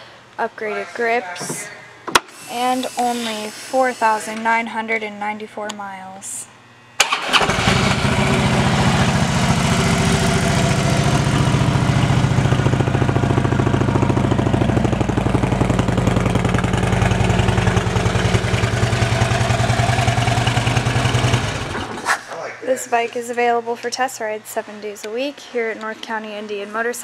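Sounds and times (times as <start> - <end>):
motorcycle engine idling: 7.3 - 22.0.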